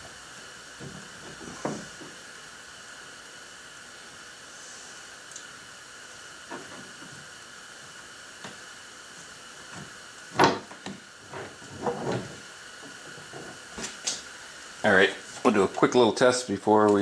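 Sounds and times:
steady hiss: 0.0 - 17.0
knocks and scrapes of parts: 9.8 - 14.2.

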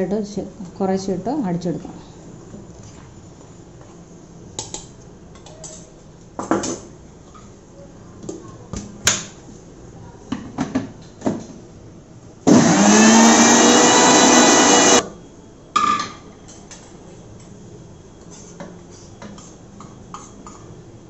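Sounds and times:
mixer grinder motor whirring: 12.5 - 15.0.

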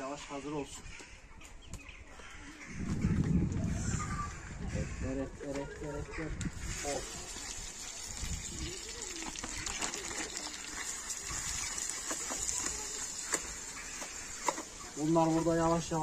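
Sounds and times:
meat sizzling in a pan: 6.5 - 16.0
plastic bag crinkling: 8.3 - 14.4.

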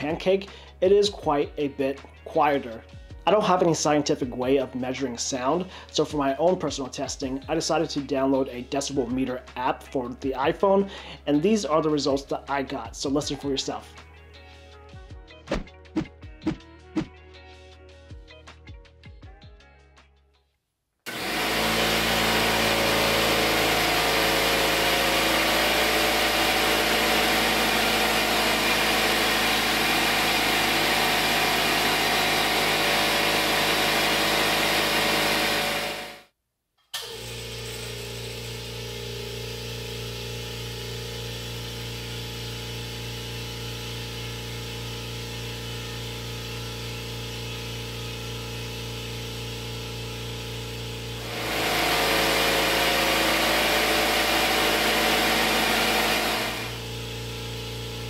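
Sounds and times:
loud air compressor running: 21.1 - 36.2, 37.0 - 58.0.

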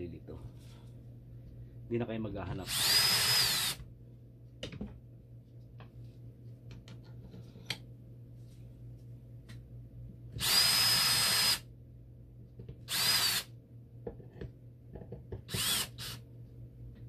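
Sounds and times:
cordless drill whining: 2.7 - 3.8, 10.4 - 11.6, 12.9 - 13.5, 15.5 - 16.2.

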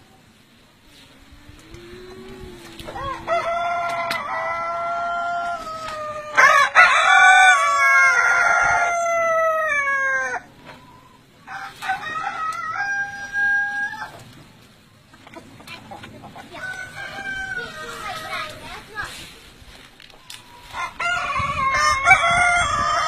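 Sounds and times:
roosters crowing: 1.3 - 14.4, 16.3 - 19.1, 20.2 - 23.0.

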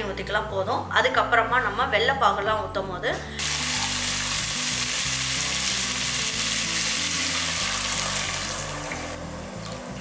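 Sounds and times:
water hissing on hot pan: 3.4 - 9.2.

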